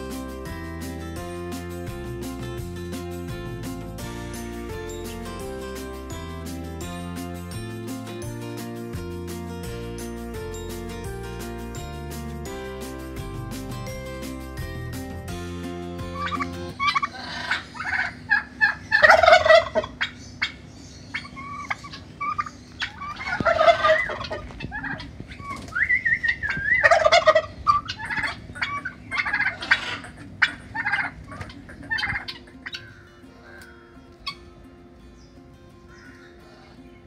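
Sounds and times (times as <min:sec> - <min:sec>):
turkeys gobbling: 0:16.1 - 0:34.4
turkey chirping calls: 0:16.2 - 0:34.5.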